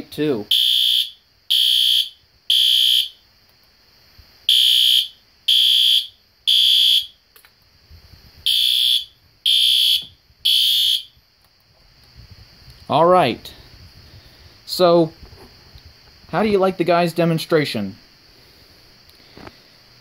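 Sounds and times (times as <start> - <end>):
fire alarm horn beeps: 0.5 - 3.2, 4.5 - 7.2, 8.4 - 11.2.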